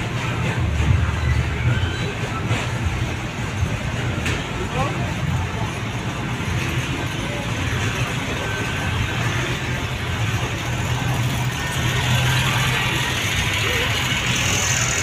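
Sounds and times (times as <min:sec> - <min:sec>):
busy fairground din: 0:00.0 - 0:15.0.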